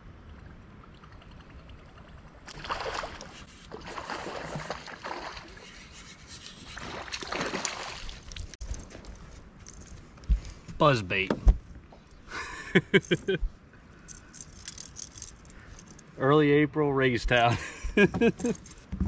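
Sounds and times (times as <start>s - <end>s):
fish splashing and thrashing: 0.8s - 8.8s.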